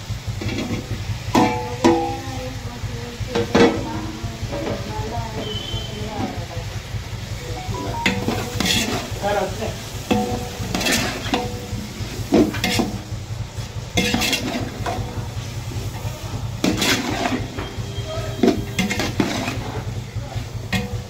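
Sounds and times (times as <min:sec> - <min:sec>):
steady low hum: 0:06.7 - 0:17.6
metal ladle scraping pot: 0:08.2 - 0:09.2, 0:10.1 - 0:13.1, 0:13.9 - 0:15.2, 0:16.6 - 0:20.0.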